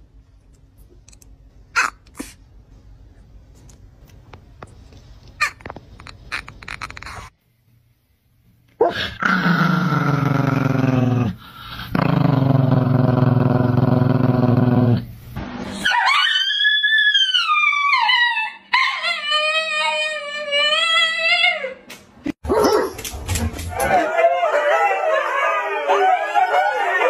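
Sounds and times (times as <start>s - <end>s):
low drawn-out growl: 9.0s - 15.1s
husky howling: 23.7s - 27.0s.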